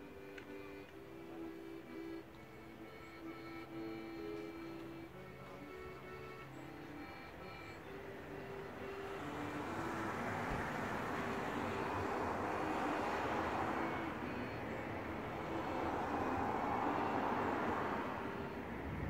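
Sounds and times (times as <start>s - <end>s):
passing vehicle rushing: 5.7s - 19.0s.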